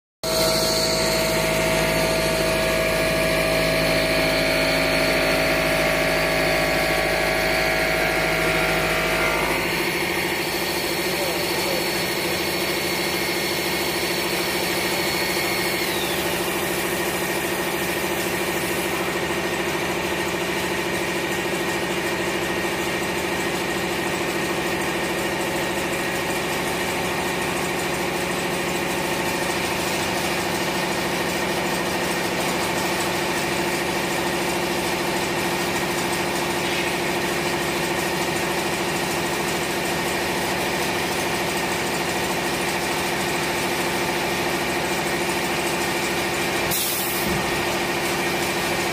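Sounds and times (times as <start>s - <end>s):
stone router whine and hum: 0.2s - 19.2s.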